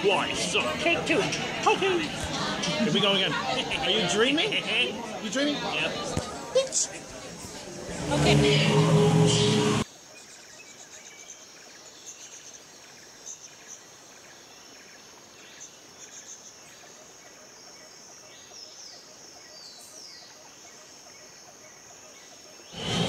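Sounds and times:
insects chirping and trilling: 9.8s - 23.0s.

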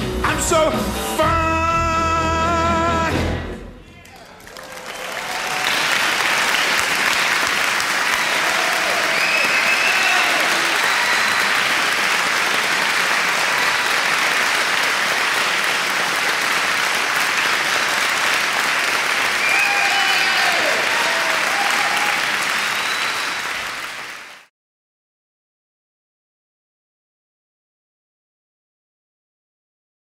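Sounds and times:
large audience applauding: 4.0s - 24.5s
crowd calls and whistles: 8.1s - 12.2s, 12.8s - 14.5s, 19.2s - 24.4s.

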